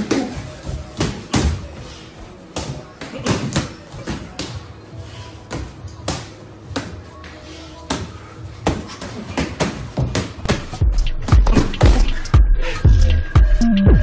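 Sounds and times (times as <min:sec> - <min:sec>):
background music: 0:10.4 - 0:14.0.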